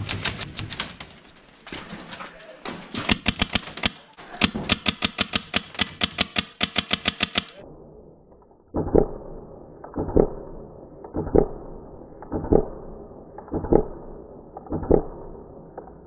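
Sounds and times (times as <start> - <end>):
airsoft rifle rapid shots: 3.0 - 7.6.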